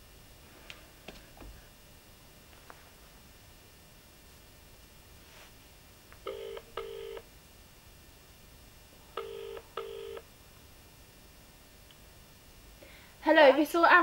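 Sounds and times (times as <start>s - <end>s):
telephone ringback tone: 6.3s - 7.2s, 9.2s - 10.2s.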